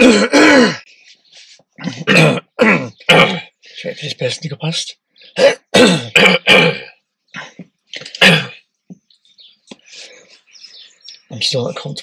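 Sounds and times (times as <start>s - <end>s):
person coughing and clearing throat: 0.0s - 0.9s, 1.8s - 3.9s, 5.4s - 8.6s.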